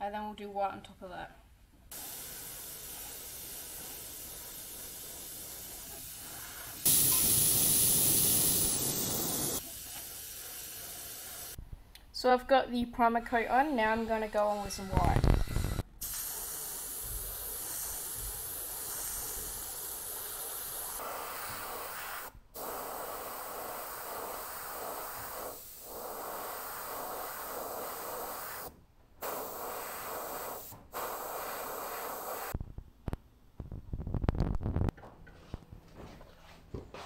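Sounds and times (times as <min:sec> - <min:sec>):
airbrush hissing: 0:01.9 - 0:11.6, 0:13.8 - 0:32.6.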